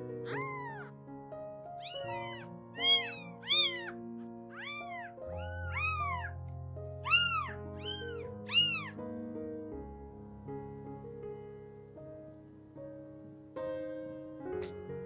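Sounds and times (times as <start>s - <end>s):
soft background music: 0.0s - 15.0s
kitten mewing: 0.1s - 0.9s, 1.8s - 6.4s, 7.0s - 9.0s.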